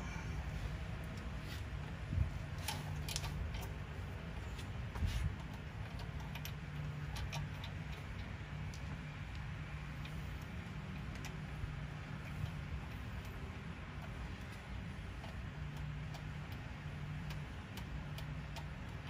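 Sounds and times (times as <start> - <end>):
steady low hum: 0.0 - 19.0
light metallic clicks and taps: 12.2 - 19.0.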